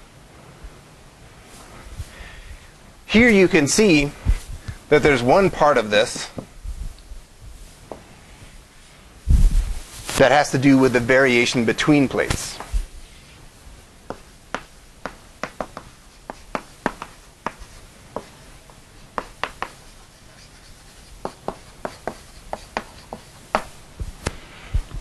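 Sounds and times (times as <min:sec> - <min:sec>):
chalk writing on blackboard: 0:14.1 - 0:23.8.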